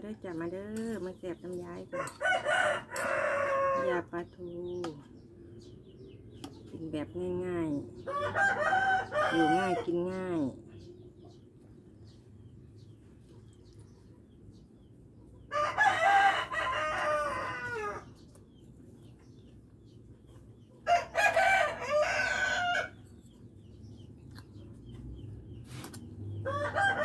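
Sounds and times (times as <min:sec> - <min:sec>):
rooster crowing: 0:08.1 - 0:09.8, 0:15.5 - 0:18.0, 0:20.9 - 0:23.0, 0:26.4 - 0:27.0.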